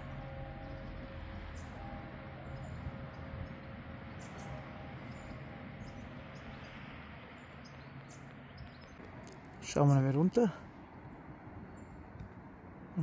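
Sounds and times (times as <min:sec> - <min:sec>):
distant church bells ringing: 0:00.0 - 0:08.7
bird chirps: 0:00.0 - 0:09.0
low distant hum: 0:00.0 - 0:13.0.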